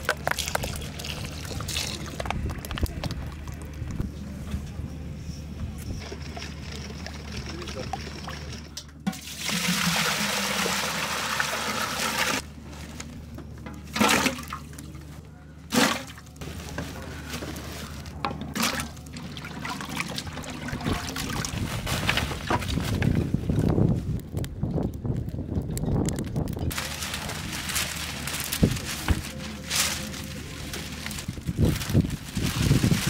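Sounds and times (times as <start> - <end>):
water pouring into metal pot: 9.1 - 12.4
rustling: 26.7 - 33.0.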